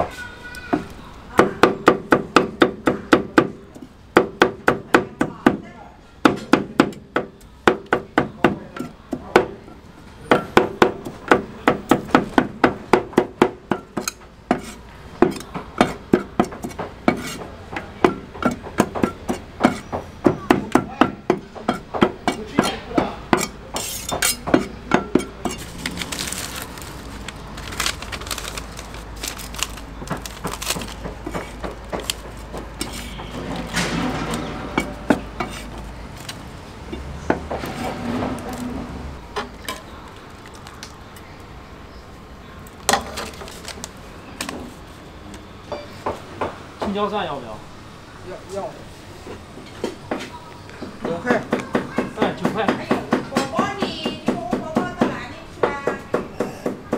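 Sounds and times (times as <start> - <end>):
cleavers chopping on a block: 1.3 - 3.6, 6.2 - 9.6, 10.3 - 25.6, 30.0 - 33.6, 49.8 - 56.9.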